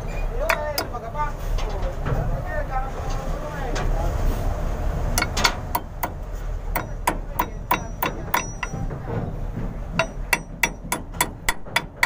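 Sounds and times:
hammer tapping on steel: 0.4 - 1.0, 5.2 - 9.2, 9.9 - 12.0.

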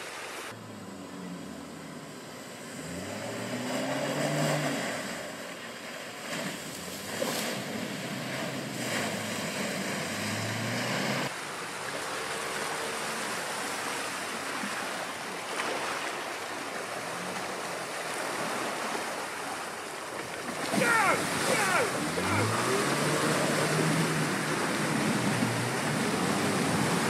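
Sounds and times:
water and mud splashing: 0.0 - 27.0
car engine: 0.5 - 11.8, 20.7 - 27.0.

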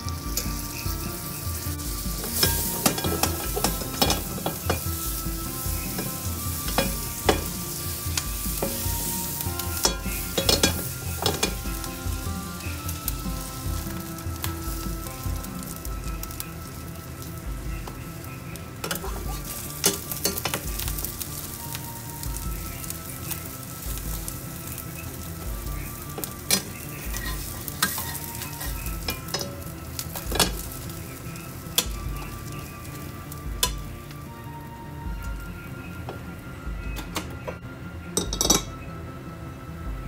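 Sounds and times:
bread sizzling in a pan: 0.0 - 36.5
metal spatula scraping a pan: 1.6 - 11.7, 26.1 - 30.9.

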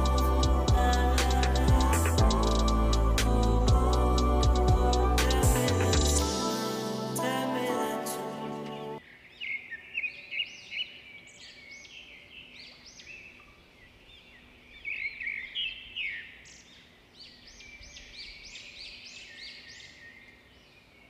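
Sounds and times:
background music: 0.0 - 9.0.

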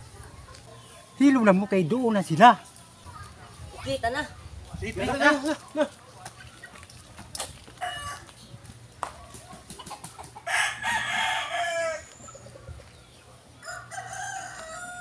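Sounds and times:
rooster crowing: 7.8 - 8.2, 10.4 - 12.3, 13.6 - 15.0.

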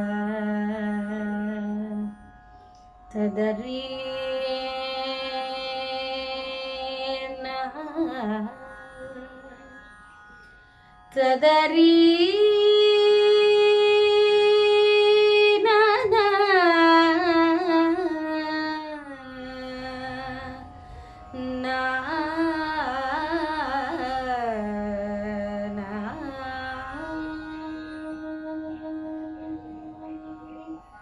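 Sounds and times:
woman singing wordlessly: 3.1 - 8.6, 11.2 - 20.6, 21.4 - 30.0.

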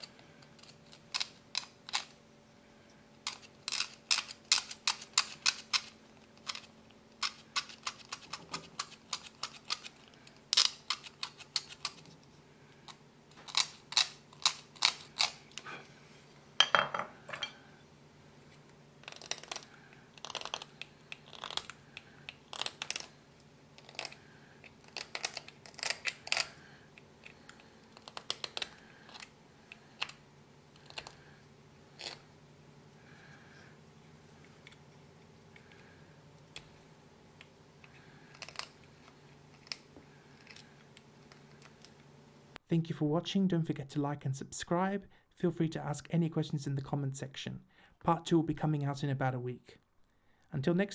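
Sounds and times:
blade shaving hard nut: 19.0 - 23.2.

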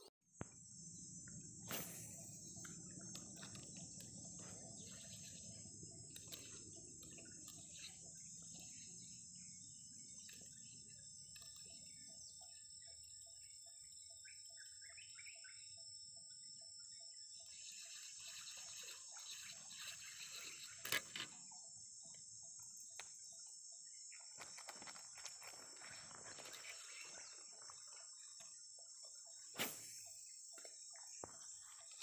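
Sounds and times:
high-pitched insect drone: 0.4 - 32.0
bird chirps: 0.8 - 24.9.

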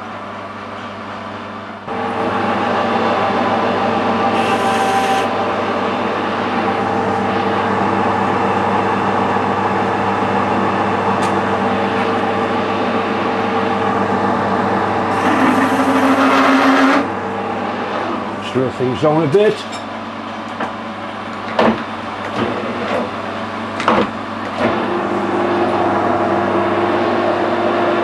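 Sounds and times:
lathe hum: 1.8 - 19.2, 22.1 - 28.0
lathe cutting metal rasp: 4.3 - 5.4, 15.1 - 17.1.

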